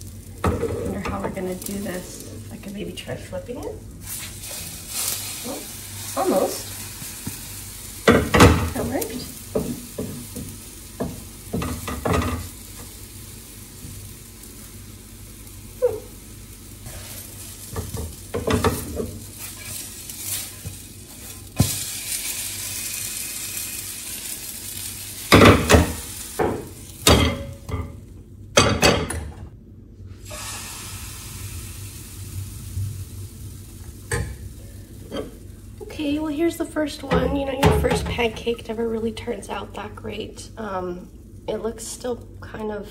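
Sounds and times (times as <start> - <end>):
batter sizzling in frying pan: 0.0 - 28.1, 30.1 - 42.8
pan and utensils clattering: 0.4 - 2.2, 11.5 - 12.6, 17.7 - 21.8
spatula scraping pan: 18.4 - 21.8.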